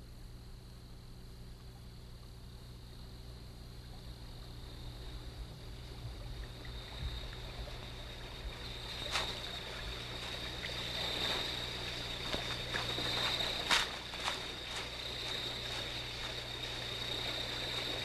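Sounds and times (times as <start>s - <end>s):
steady high hum: 0.0s - 18.0s
footsteps on twigs and leaves: 8.6s - 18.0s.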